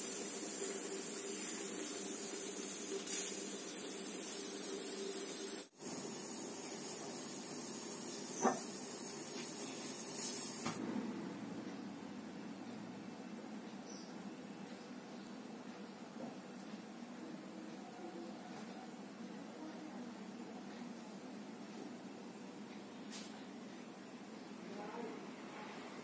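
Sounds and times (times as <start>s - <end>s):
pressure cooker steam hissing: 0.0s - 10.8s.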